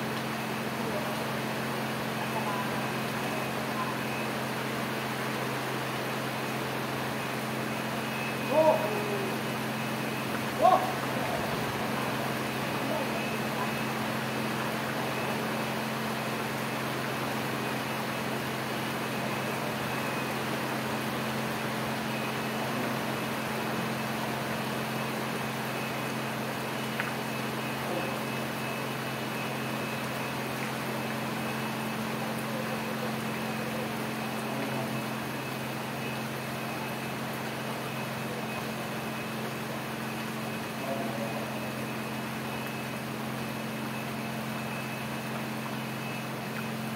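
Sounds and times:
heavy rain falling on a pond: 0.0s - 46.9s
low mechanical hum: 0.0s - 46.9s.

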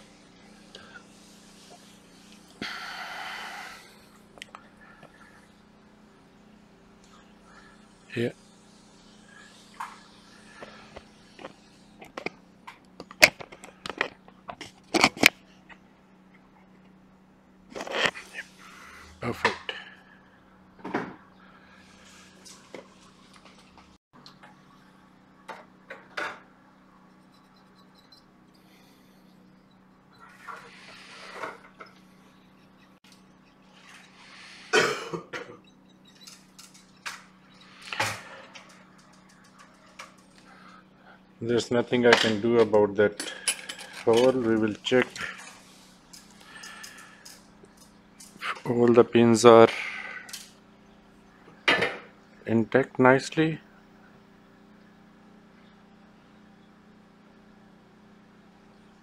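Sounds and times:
person coughing: 34.7s - 35.6s
small tools clicking on circuit board: 35.6s - 38.0s.

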